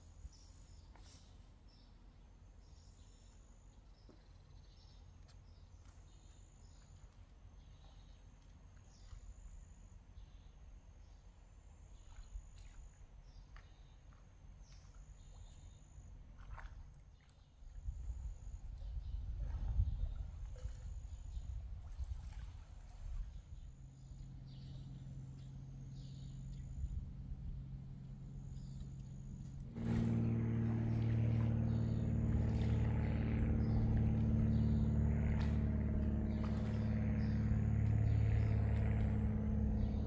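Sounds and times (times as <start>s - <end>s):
low rumble: 17.9s - 40.0s.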